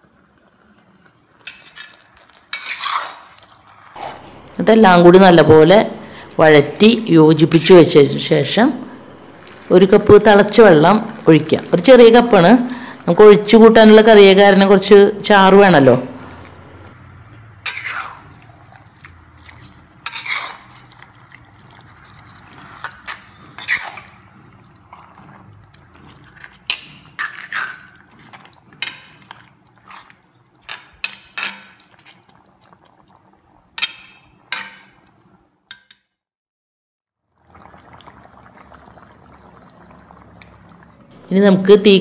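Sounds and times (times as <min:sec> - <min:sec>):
curry bubbling: 0:00.0 - 0:35.5, 0:37.2 - 0:42.0
metal spoon scraping pan: 0:01.4 - 0:03.4, 0:17.5 - 0:21.2, 0:22.4 - 0:25.4, 0:26.0 - 0:32.0.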